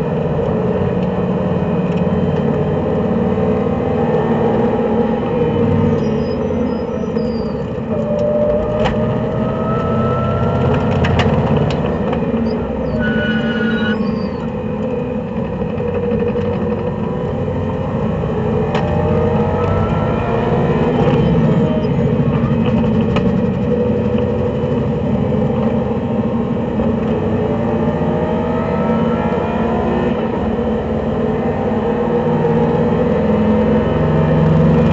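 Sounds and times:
race car engine: 0.0 - 34.9
road noise: 0.0 - 34.9
thin whine: 12.4 - 14.6.

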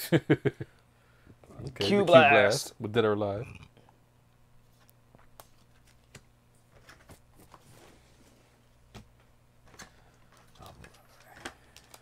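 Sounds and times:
faint low hum: 0.0 - 12.0
clicks of handling trading cards: 9.7 - 12.0.

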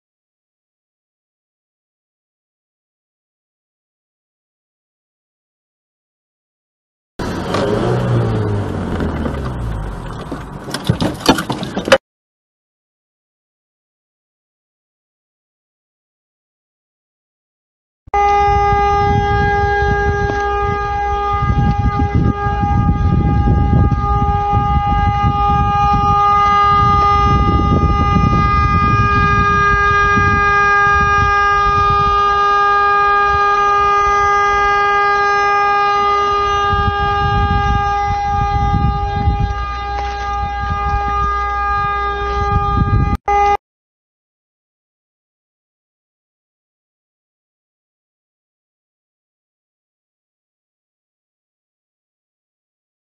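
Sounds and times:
vehicle horn steady tone: 18.1 - 43.6
low rumbling noise: 18.4 - 43.2.

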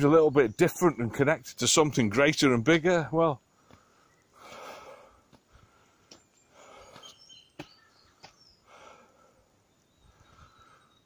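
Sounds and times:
faint bird chirps: 3.4 - 11.0
man breathing: 3.5 - 7.2, 8.1 - 11.0.

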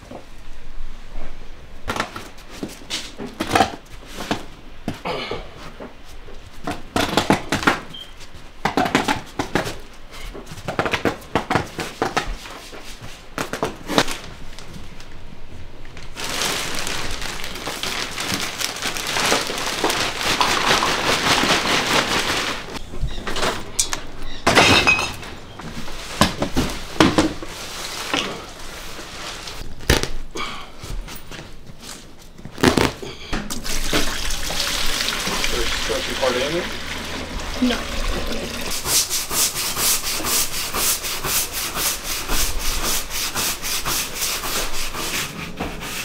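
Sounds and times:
debris crashing into trash bags: 16.1 - 23.7, 32.5 - 34.3.

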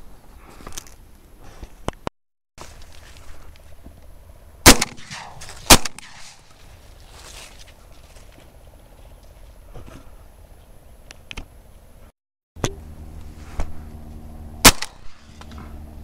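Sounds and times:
loud shotgun shot: 4.6 - 6.4, 14.6 - 15.4.

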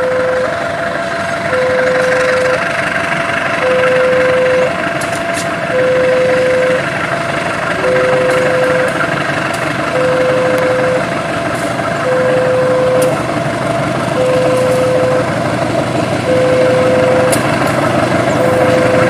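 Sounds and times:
electronic warning beep: 0.0 - 0.6, 1.5 - 2.6, 3.6 - 4.8, 5.7 - 6.9, 7.8 - 9.1, 9.9 - 11.1, 12.0 - 13.2, 14.1 - 15.4, 16.2 - 17.5, 18.3 - 19.0
locomotive rumbling on rails: 0.0 - 19.0.

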